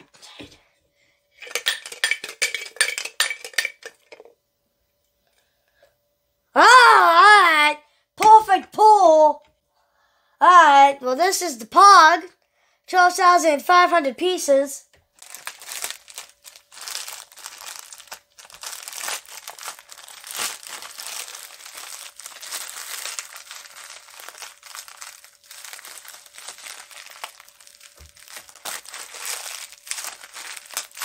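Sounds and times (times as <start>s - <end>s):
plastic wrapper crinkling: 15.1s - 31.0s.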